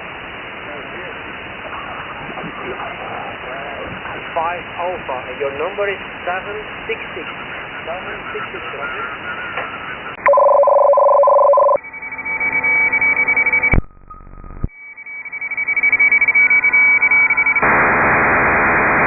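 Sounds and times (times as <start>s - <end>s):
radio band noise hiss: 0.0s - 10.2s, 17.6s - 19.0s
pair of steady radio tones: 0.7s - 19.0s
thin data signal tones: 10.2s - 17.7s.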